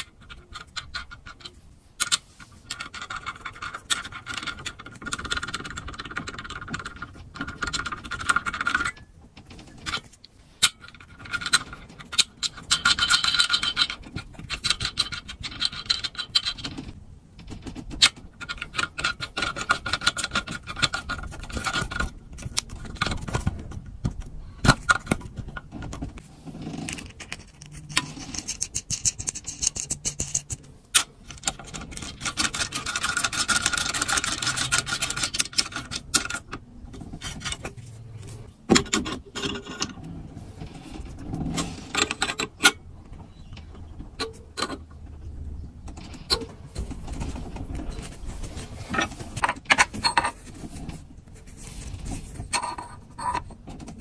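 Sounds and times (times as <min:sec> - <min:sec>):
threads scraping: 0:24.4 - 0:54.0.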